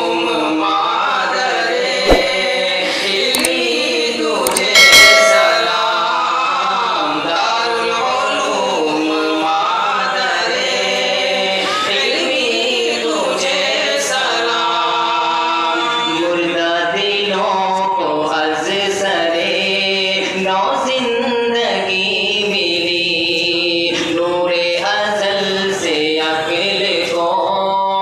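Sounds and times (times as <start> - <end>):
choir singing: 0.0 - 16.3
loud thump: 2.1 - 2.5.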